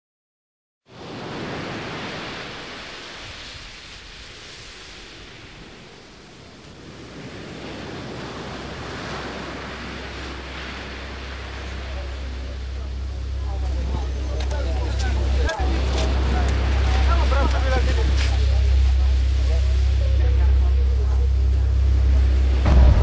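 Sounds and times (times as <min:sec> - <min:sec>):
sea waves washing ashore: 0:00.9 - 0:23.0
low steady rumble: 0:08.4 - 0:23.0.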